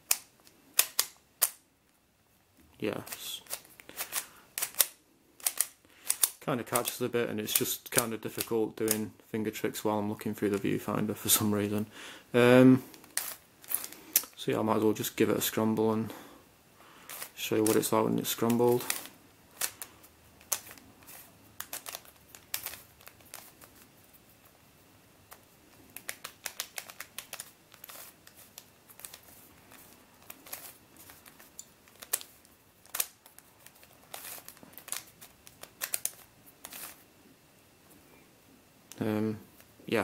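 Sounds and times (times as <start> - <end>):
plastic puzzle clicking: 3.1 - 6.9.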